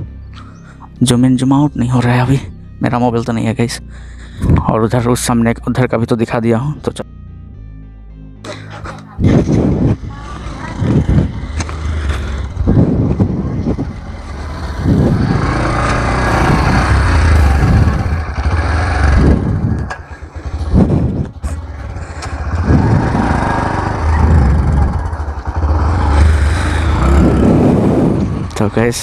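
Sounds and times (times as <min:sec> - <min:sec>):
motorcycle engine revving: 0:08.9 - 0:29.0.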